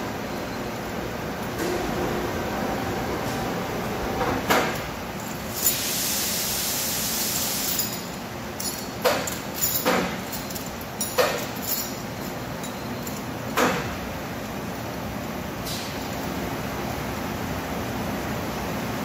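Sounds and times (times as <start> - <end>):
machine shop background noise: 0.0 - 19.0
hiss: 5.5 - 8.1
steel ring clinking: 7.6 - 13.6.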